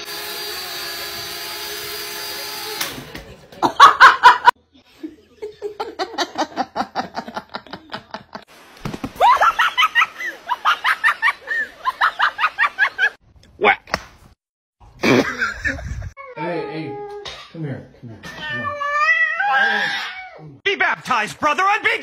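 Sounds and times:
loud laughter: 3.6 - 8.4, 9.2 - 13.2, 15.0 - 16.2.

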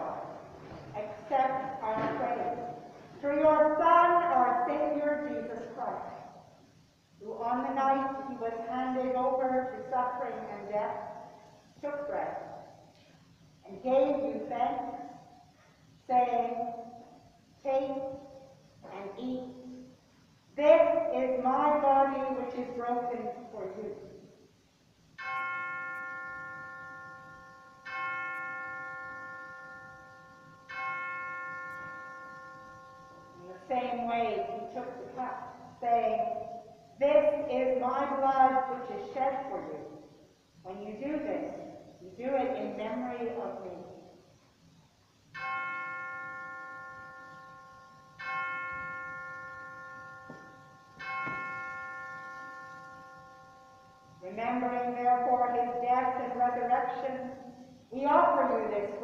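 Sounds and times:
bell struck and ringing: 25.2 - 33.5, 45.4 - 54.2.

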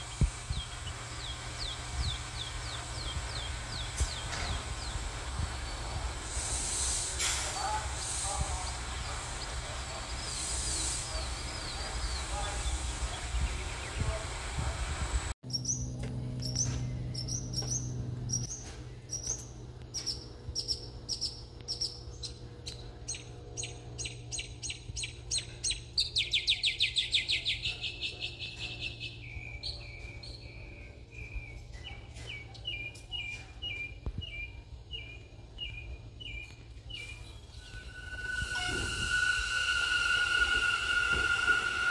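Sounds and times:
small birds chirping and trilling: 0.0 - 6.1
steady low hum: 0.0 - 26.1, 34.2 - 41.9.

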